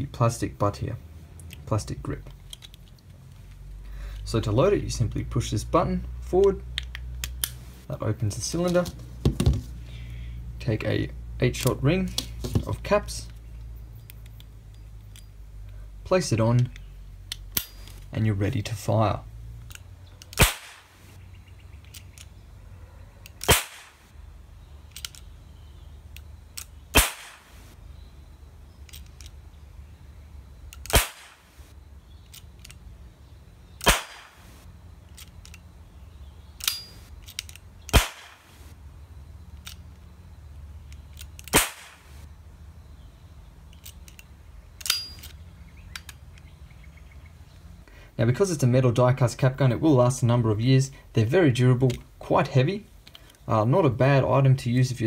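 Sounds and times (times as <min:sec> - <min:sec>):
cap gun bangs: 0:20.4 - 0:20.9, 0:23.4 - 0:24.0, 0:27.0 - 0:27.5, 0:33.8 - 0:34.4, 0:37.9 - 0:38.4, 0:41.5 - 0:42.0.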